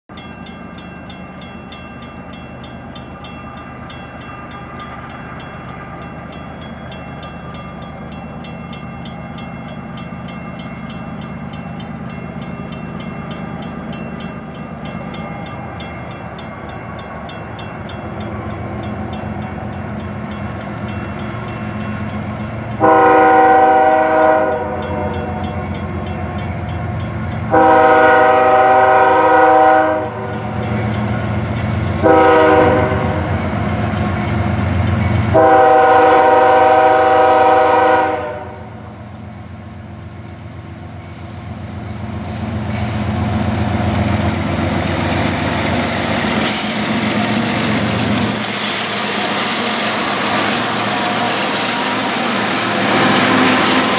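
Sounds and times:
crossing bell ringing: 0.1s - 40.7s
train horn blast: 22.8s - 25.5s, 27.5s - 30.5s, 32.0s - 33.4s, 35.3s - 38.9s
locomotive engine rumble: 38.8s - 53.9s.

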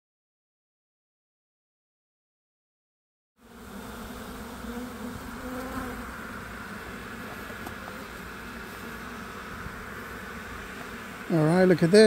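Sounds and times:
bees buzzing: 3.4s - 12.0s.

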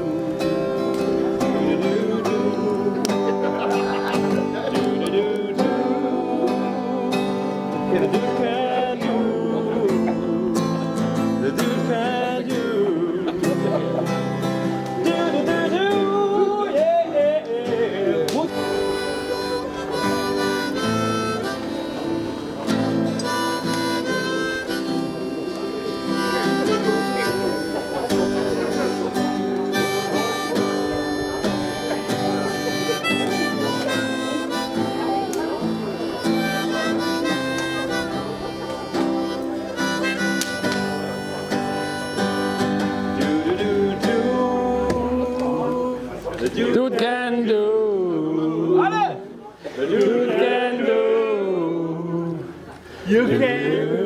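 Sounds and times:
strummed acoustic guitar: 0.0s - 48.7s
harmonica playing held notes: 18.5s - 43.4s.

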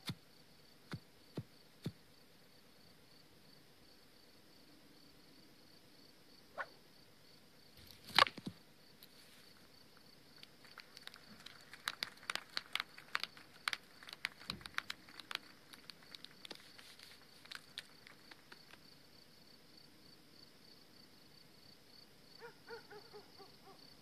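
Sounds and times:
crickets chirping: 0.0s - 24.0s
light clicks and clatters: 10.4s - 18.9s.

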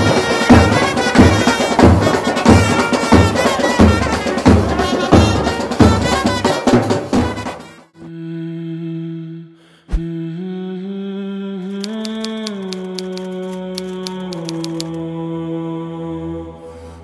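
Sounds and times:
heavy drum beat: 0.0s - 7.5s
festive band music: 0.0s - 7.8s
reedy wind instrument melody: 0.0s - 7.8s.

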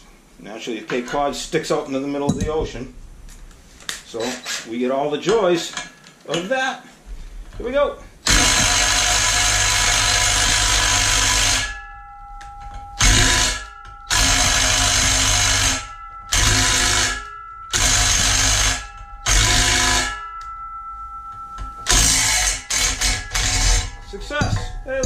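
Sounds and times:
impact driver hammering at a bolt: 8.3s - 11.6s, 13.0s - 20.1s
thin metallic ringing: 9.5s - 25.0s.

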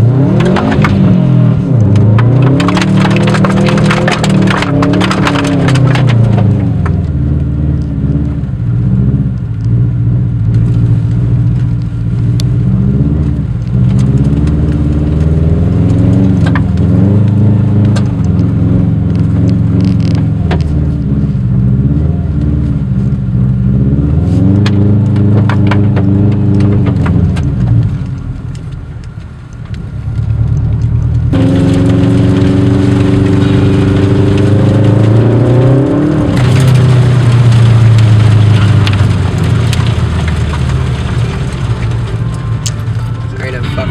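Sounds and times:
car engine revving: 0.0s - 43.9s
clicks and knocks: 1.8s - 7.1s, 24.6s - 29.9s.

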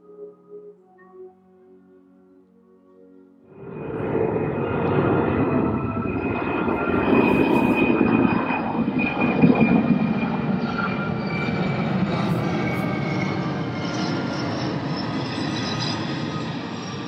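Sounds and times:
jet aircraft flyover rumble: 3.5s - 17.0s.

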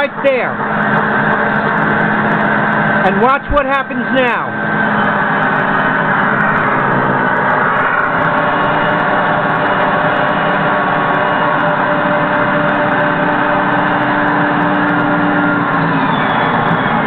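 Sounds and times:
construction machinery running: 0.0s - 17.0s
steady hum: 0.0s - 17.0s.

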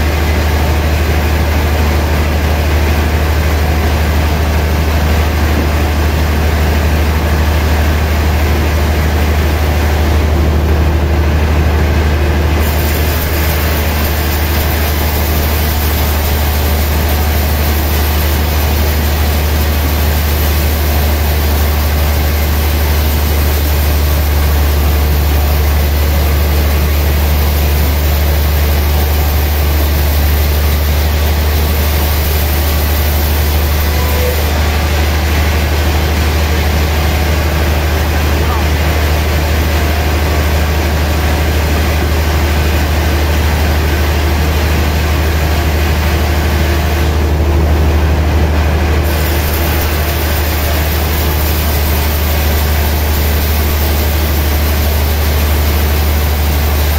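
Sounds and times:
band sawmill humming: 0.0s - 56.9s
bright hiss: 12.6s - 34.6s, 49.1s - 56.9s.

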